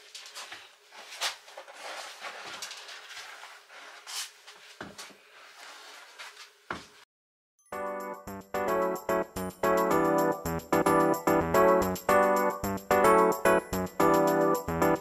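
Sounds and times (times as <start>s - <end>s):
vinyl sheet rustling and scraping: 0.0s - 7.0s.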